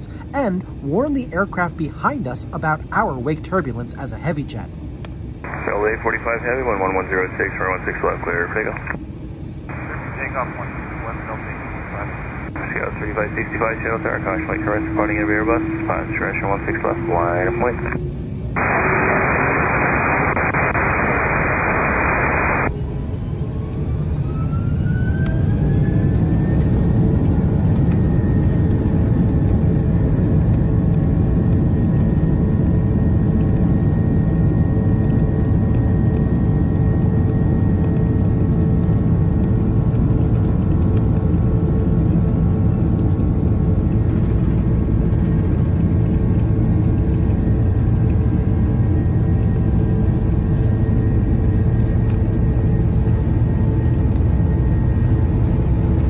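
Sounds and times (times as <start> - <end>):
jet engines whining: 0.0 - 56.0
radio hiss: 5.4 - 9.0, 9.7 - 18.0, 18.6 - 22.7.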